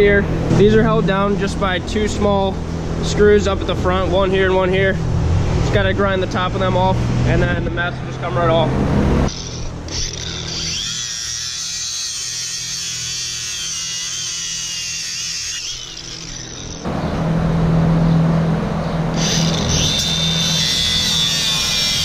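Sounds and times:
rough grind with low hum: 0.0 - 22.0
angle grinder grinding screws: 9.3 - 16.9, 19.1 - 22.0.

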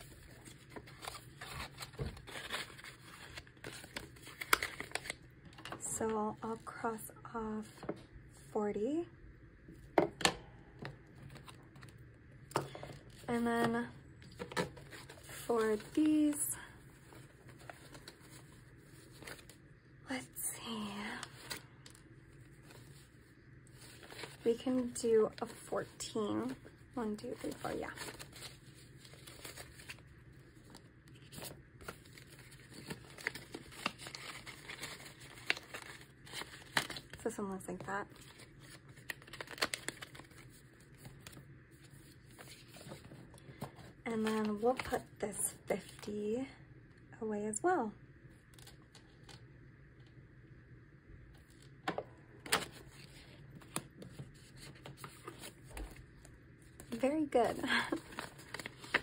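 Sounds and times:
paper banknotes rustling: 0.0 - 5.2, 13.6 - 16.4, 23.8 - 37.2, 38.1 - 45.0, 52.5 - 56.0, 56.8 - 59.0.

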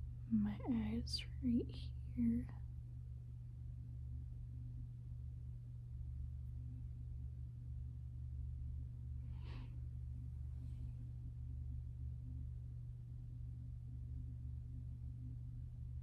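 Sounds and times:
steady low hum: 0.0 - 16.0
soft breath: 9.2 - 11.1.

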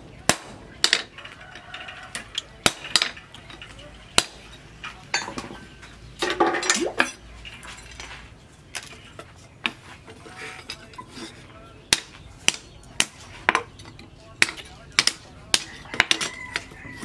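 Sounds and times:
steel clinking and scraping: 0.8 - 17.0.

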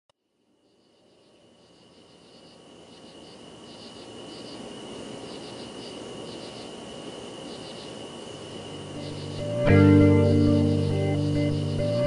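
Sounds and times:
crickets chirping: 0.2 - 12.0
steady high trill: 8.8 - 12.0.

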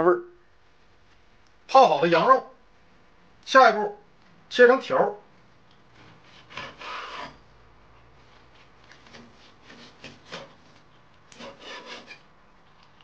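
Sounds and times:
cleaver slicing meat on board: 6.0 - 7.4, 8.6 - 12.2.

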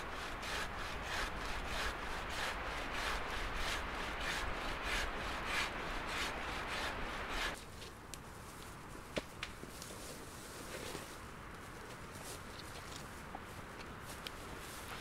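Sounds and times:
hand saw cutting log: 0.0 - 7.6.

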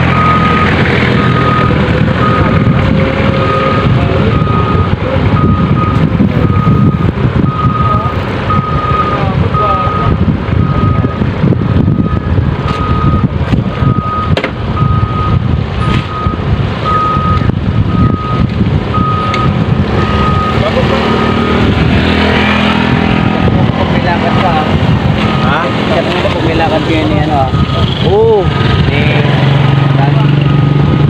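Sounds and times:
reversing alarm beeping: 0.0 - 2.7, 3.3 - 11.2, 11.9 - 21.6, 25.2 - 28.7
loud low rumble: 0.0 - 31.0.

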